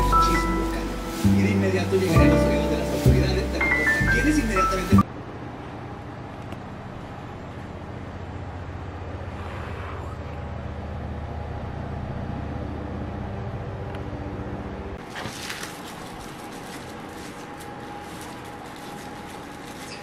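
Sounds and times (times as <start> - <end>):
packaging crinkling and rustling: 15.0 - 20.0.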